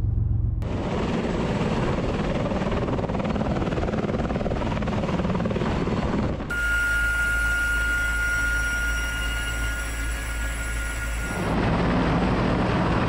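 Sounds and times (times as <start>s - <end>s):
steady high tone over low hum: 0.0s - 2.1s, 6.5s - 13.0s
helicopter rotors turning: 0.3s - 13.0s.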